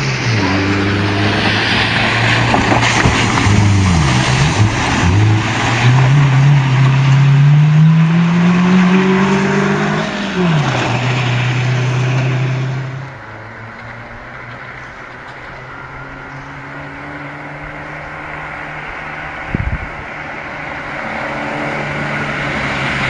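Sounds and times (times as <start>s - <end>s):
rally car engine revving: 0.0s - 23.0s
gravel spraying: 1.0s - 7.2s.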